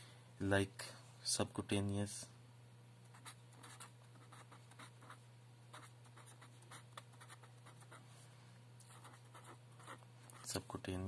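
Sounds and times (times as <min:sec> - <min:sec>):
steady low hum: 0:00.0 - 0:11.0
marker pen writing: 0:03.1 - 0:08.0, 0:08.9 - 0:10.5.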